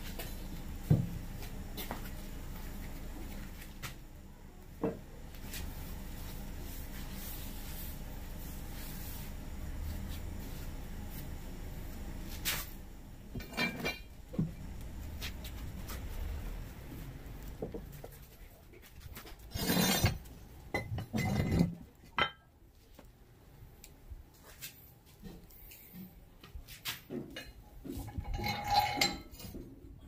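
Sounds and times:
weight plates clinking and scraping: 0:13.3 - 0:16.0, 0:19.4 - 0:22.4, 0:28.1 - 0:29.6.

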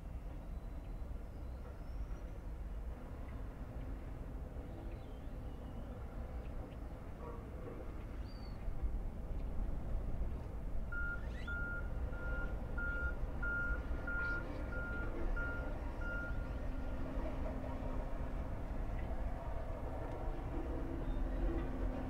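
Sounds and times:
backup alarm beeping: 0:10.9 - 0:16.4.

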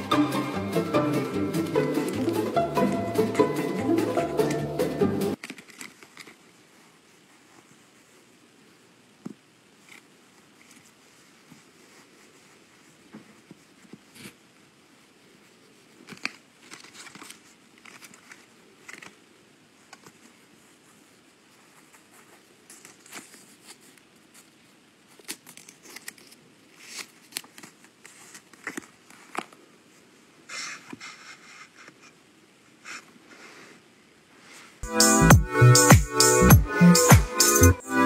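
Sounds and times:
paper tag crinkling: 0:05.3 - 0:06.5, 0:15.8 - 0:20.6, 0:21.6 - 0:29.6.

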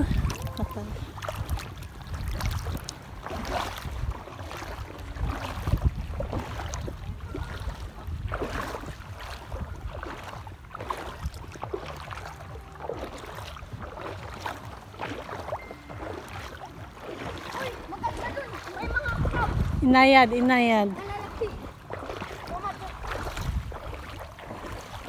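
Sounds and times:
water sloshing from wading: 0:00.0 - 0:25.0
wind rumble on microphone: 0:00.0 - 0:25.0.

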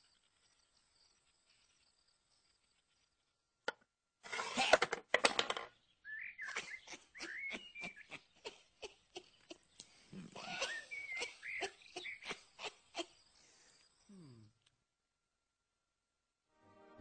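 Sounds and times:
chess pieces clattering in wooden box: 0:04.3 - 0:05.7.

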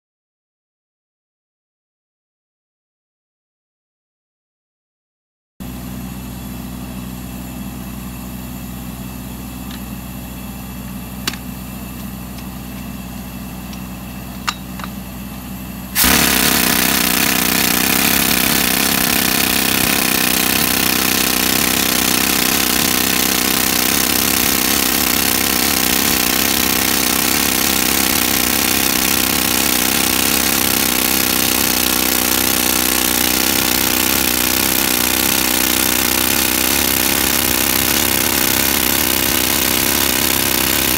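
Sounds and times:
pneumatic rock drill hammering: 0:11.2 - 0:15.1, 0:16.0 - 0:40.9.

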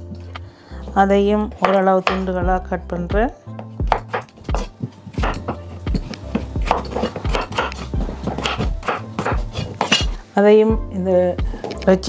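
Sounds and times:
knife chopping on wooden board: 0:01.6 - 0:02.3, 0:03.6 - 0:10.2.

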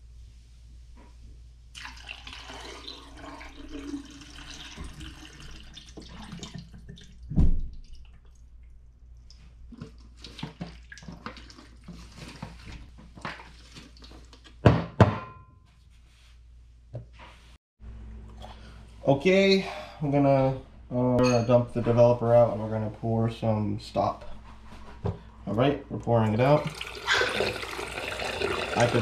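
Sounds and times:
liquid pouring and splashing: 0:01.7 - 0:14.6, 0:26.4 - 0:29.0
liquid sloshing in a tank: 0:01.7 - 0:14.6, 0:26.4 - 0:29.0.

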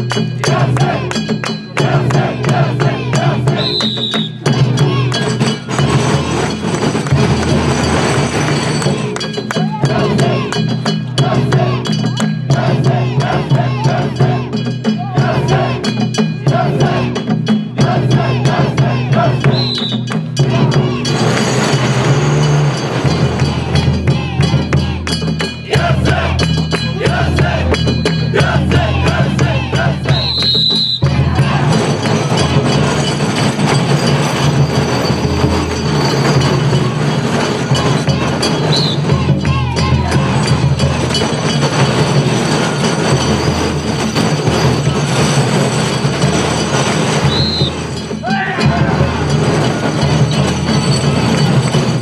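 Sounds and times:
drum strikes: 0:00.0 - 0:52.0
metal bell clinking: 0:03.5 - 0:18.0, 0:19.4 - 0:52.0
wooden wheels rumbling on stone: 0:05.2 - 0:09.4, 0:30.1 - 0:52.0.

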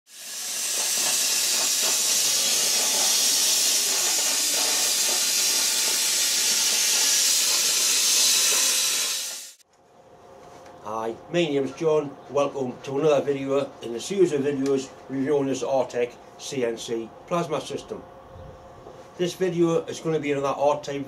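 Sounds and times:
plasma torch hissing: 0:00.1 - 0:09.6.

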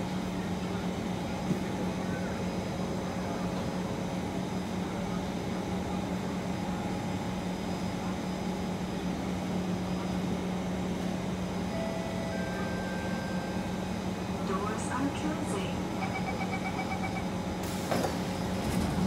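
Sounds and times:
metro train hum and rumble: 0:00.0 - 0:19.0
faint high whine tones: 0:11.6 - 0:14.0.

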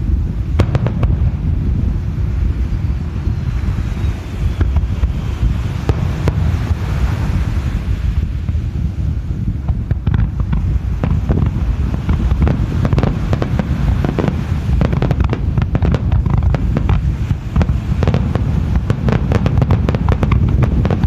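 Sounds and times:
continuous low rumble: 0:00.0 - 0:21.0
fireworks bangs and crackles: 0:00.0 - 0:21.0.

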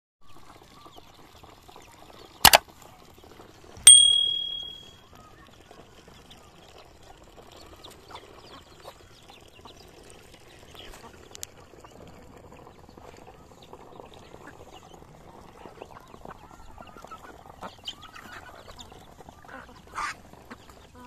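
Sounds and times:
sharp ringing knock: 0:03.9 - 0:04.9.

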